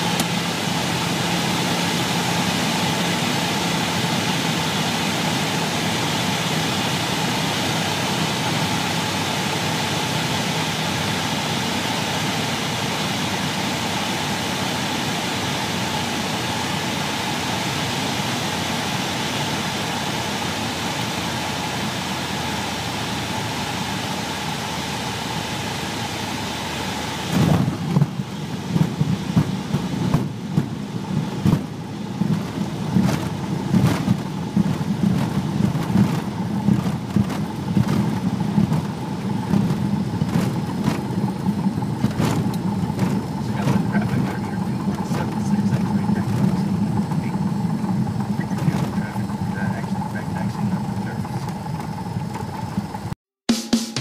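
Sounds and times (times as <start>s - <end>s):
low hum: 0.0s - 53.2s
propeller aircraft engine drone: 0.0s - 53.2s
wheels rumbling on runway: 0.0s - 53.2s
wind rush: 25.6s - 44.2s.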